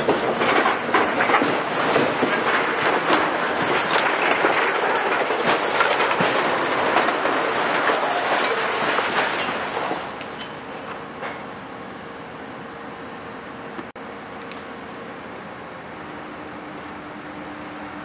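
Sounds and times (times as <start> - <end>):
masonry and rubble crashing down: 0.0 - 10.6.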